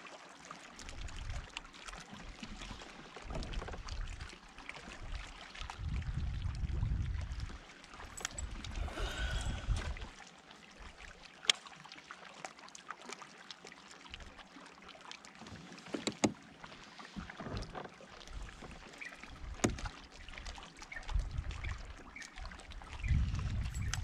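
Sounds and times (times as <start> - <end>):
water against kayak hull: 0.0 - 24.0
clicks and knocks from hull: 3.0 - 4.2, 15.4 - 16.5, 17.1 - 20.0.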